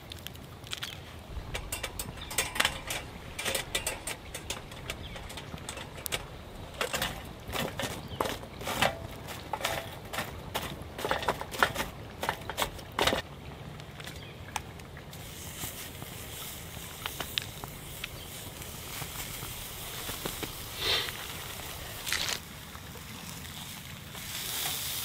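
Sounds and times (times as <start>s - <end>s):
fire hissing: 0.0s - 9.4s, 15.1s - 25.0s
wood fire crackling: 0.0s - 25.0s
stick knocking among burning wood: 0.2s - 13.2s, 15.6s - 22.4s.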